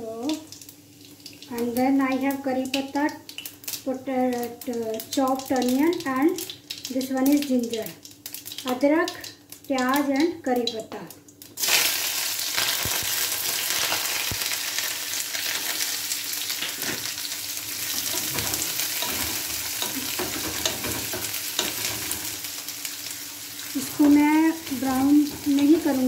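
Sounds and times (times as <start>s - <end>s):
food sizzling in hot oil: 0.0s - 26.0s
wooden spatula tapping and scraping: 17.9s - 22.3s, 23.8s - 26.0s.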